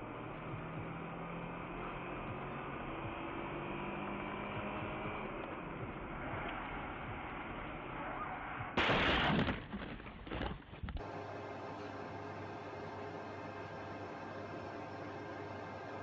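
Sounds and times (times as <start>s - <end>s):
car cabin road and engine noise: 0.0s - 8.8s.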